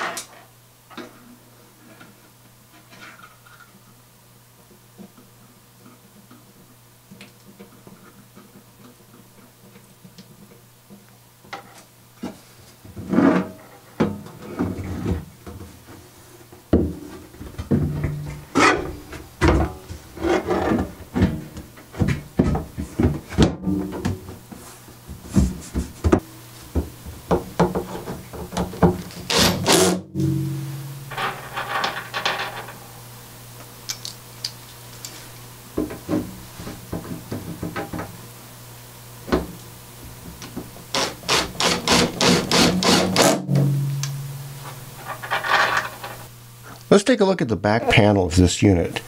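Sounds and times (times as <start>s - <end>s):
screws driven by hand: 29.3s - 30.0s, 40.9s - 43.4s.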